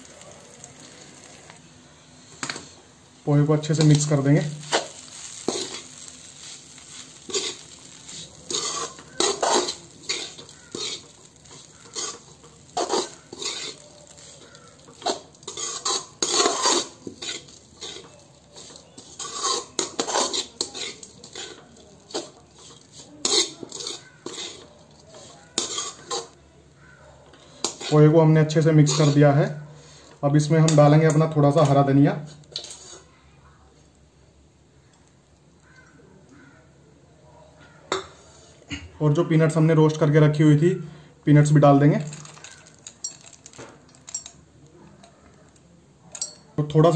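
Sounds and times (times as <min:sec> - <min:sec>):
metal spatula scraping metal pan: 0:03.5 - 0:26.4, 0:27.3 - 0:30.1, 0:32.5 - 0:33.1.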